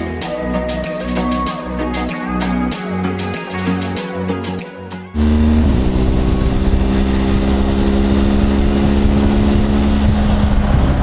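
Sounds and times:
motorcycle engine cruising: 5.1s - 11.0s
tyre noise on wet road: 5.2s - 11.0s
wind noise: 5.3s - 11.0s.

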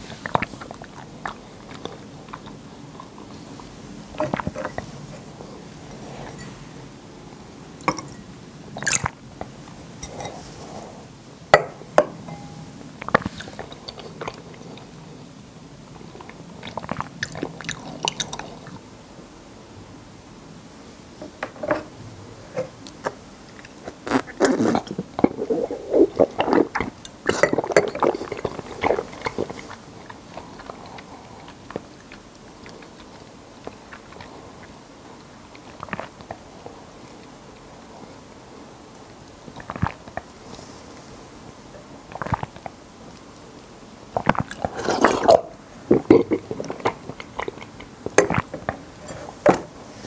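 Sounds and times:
chewing jelly: 0.2s - 6.5s, 13.0s - 15.0s, 15.9s - 18.8s, 22.8s - 40.6s, 42.0s - 49.4s.

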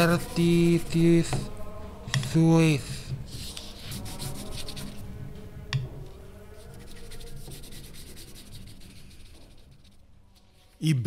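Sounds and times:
pens scratching on paper: 3.3s - 5.1s, 6.6s - 10.7s.

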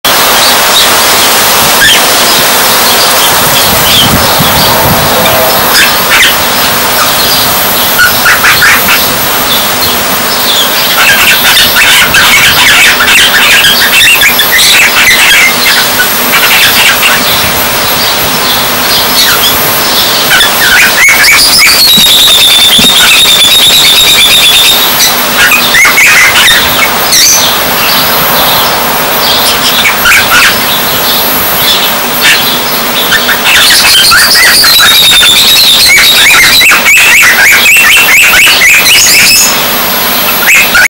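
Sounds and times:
cockatiel wavering whistle: 0.1s - 28.6s, 29.2s - 40.9s
cockatiel chirping: 0.1s - 40.9s.

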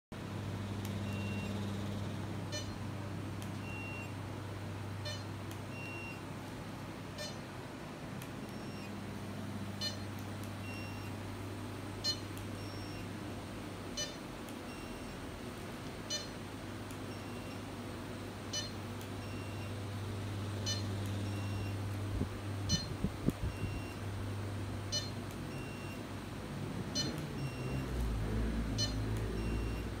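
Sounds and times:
low steady hum: 0.2s - 30.0s
short electronic beeps: 1.0s - 2.8s, 3.6s - 4.1s, 5.0s - 6.2s, 7.2s - 7.4s, 9.8s - 11.2s, 12.0s - 13.0s, 14.0s - 15.2s, 16.1s - 16.4s, 18.5s - 19.7s, 20.6s - 21.8s, 22.7s - 24.0s, 24.9s - 26.0s, 26.9s - 27.9s, 28.8s - 30.0s.

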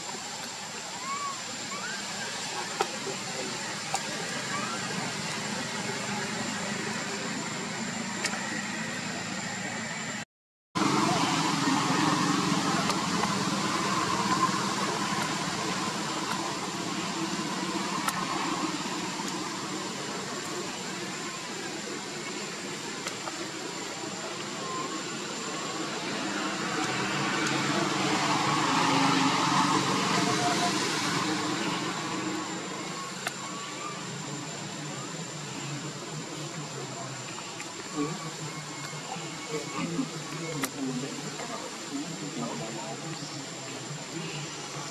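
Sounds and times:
faint indistinct voices: 0.0s - 10.2s, 10.8s - 44.9s.

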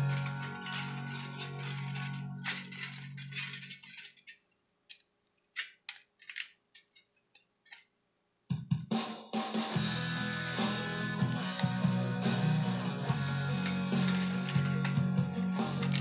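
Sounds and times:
aluminum strips clicking and crinkling: 0.0s - 7.9s, 15.7s - 16.0s
guitar background music: 9.7s - 16.0s.

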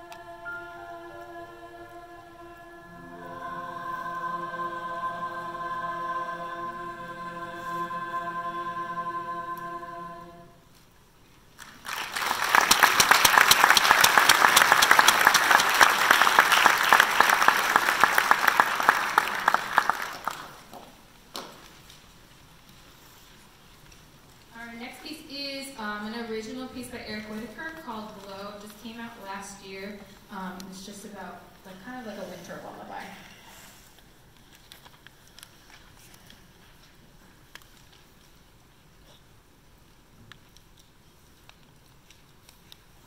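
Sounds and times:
women's choir singing chord: 0.0s - 10.6s
audience applause: 11.6s - 20.9s.

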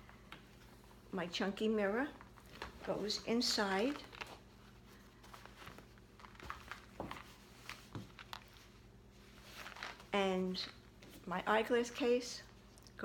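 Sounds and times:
canvas bag rustling: 2.2s - 10.2s.

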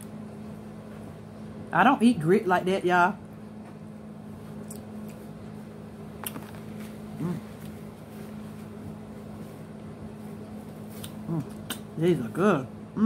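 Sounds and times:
low room hum: 0.0s - 13.0s
woman murmuring while chewing: 7.1s - 7.7s, 11.1s - 12.0s.

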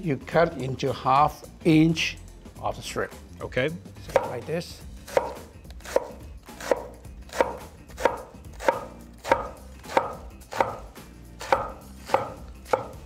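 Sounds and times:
cleaver chopping on wooden board: 4.1s - 4.4s, 5.1s - 13.0s.

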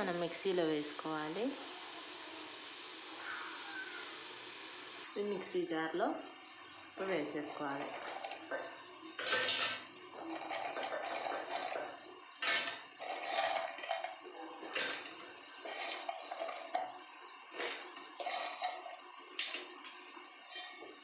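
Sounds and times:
fried pieces clattering in steel jar: 9.2s - 16.8s, 17.6s - 19.0s, 20.4s - 21.0s.

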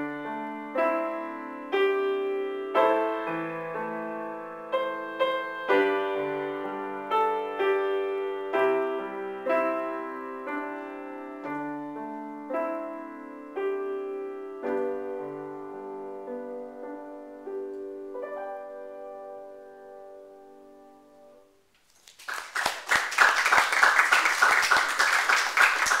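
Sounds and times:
grand piano chords: 0.0s - 21.7s
audience applause: 22.0s - 26.0s.

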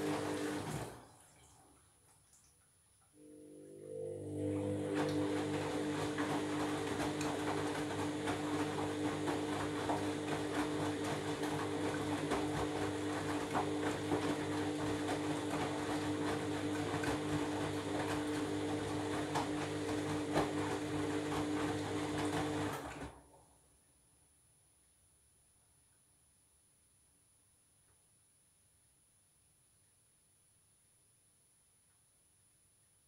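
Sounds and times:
washing machine drum spinning: 0.0s - 1.1s, 4.5s - 23.0s.

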